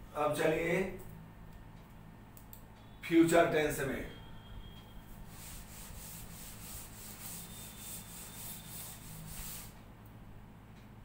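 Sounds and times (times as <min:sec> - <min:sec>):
duster wiping chalkboard: 0:05.2 - 0:09.8.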